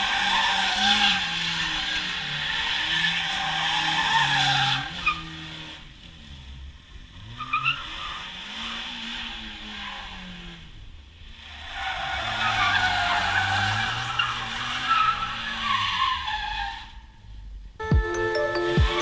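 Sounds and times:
tyres squealing on asphalt: 0.0s - 17.5s
music: 17.8s - 19.0s.

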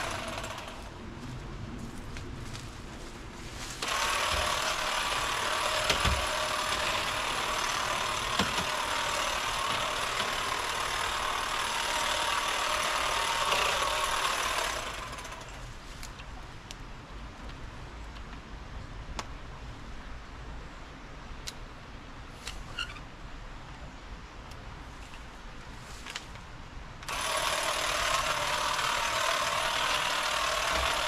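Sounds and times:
electric hedge trimmer cutting: 0.0s - 0.9s, 3.8s - 15.7s, 27.1s - 31.0s.

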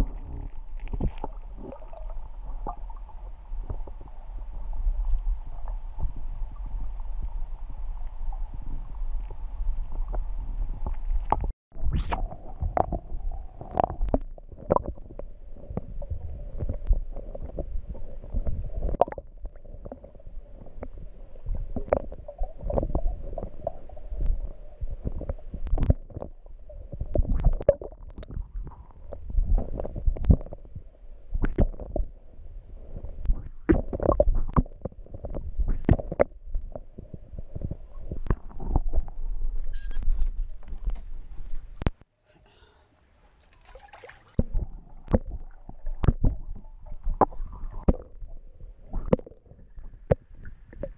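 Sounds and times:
muffled underwater water movement: 0.0s - 50.9s.

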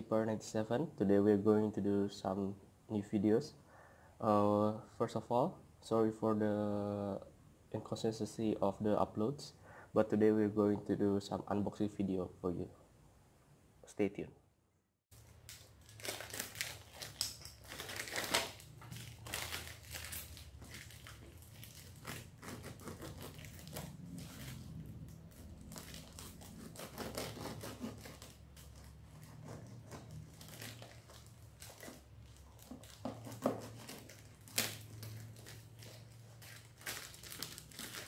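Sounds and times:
plastic wrapping crinkling and tearing: 15.2s - 38.0s.

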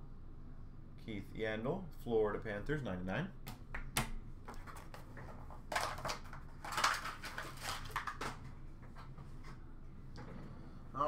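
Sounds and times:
low steady hum: 0.0s - 11.0s
packaging crinkling and rustling: 5.7s - 8.5s.

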